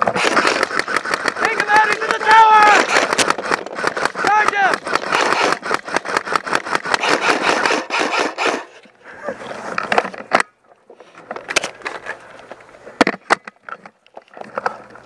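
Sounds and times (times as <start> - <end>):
sharp clicks: 0.0 - 8.7.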